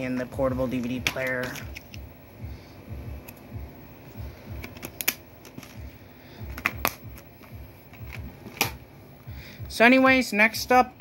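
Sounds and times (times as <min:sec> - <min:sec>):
soft low thumps: 0:00.0 - 0:10.8
plastic disc case clicks: 0:04.6 - 0:05.8, 0:06.5 - 0:08.8.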